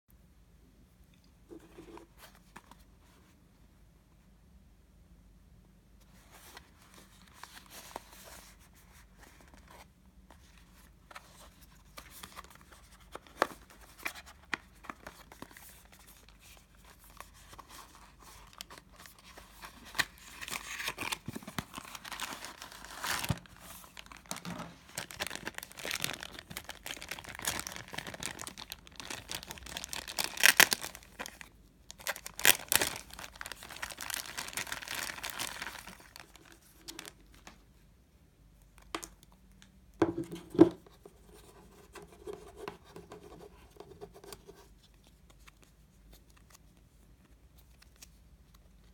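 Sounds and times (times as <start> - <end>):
plastic crackles: 18.4 - 37.6
plastic bag crinkling: 19.9 - 37.3.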